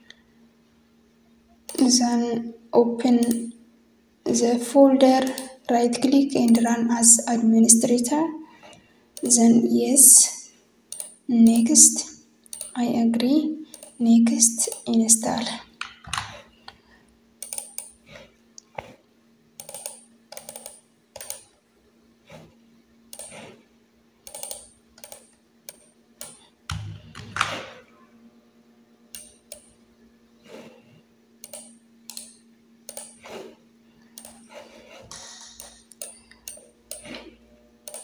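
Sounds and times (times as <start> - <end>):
faint steady hum: 0.0 - 38.0
keyboard and mouse clicking: 1.7 - 2.0, 3.2 - 3.5, 5.2 - 5.6, 6.4 - 6.8, 10.9 - 11.7, 12.5 - 12.8, 13.7 - 14.0, 17.4 - 18.0, 19.6 - 21.4, 23.1 - 23.5, 24.3 - 27.6, 29.1 - 29.7, 31.4 - 33.2, 34.2 - 37.1.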